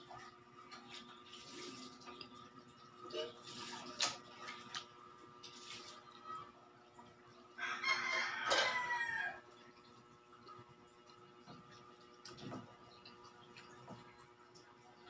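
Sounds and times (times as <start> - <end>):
rooster crowing: 7.6 - 9.4.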